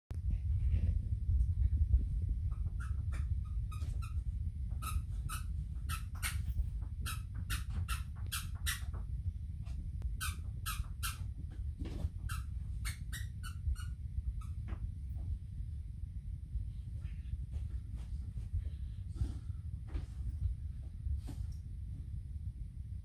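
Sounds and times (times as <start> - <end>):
squeaky dog toy squeaking: 4.8 - 9.0, 10.2 - 11.2.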